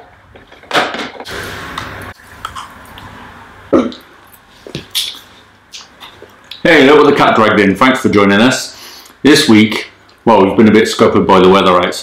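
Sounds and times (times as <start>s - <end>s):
man's mouth noises eating: 1.8s - 6.6s.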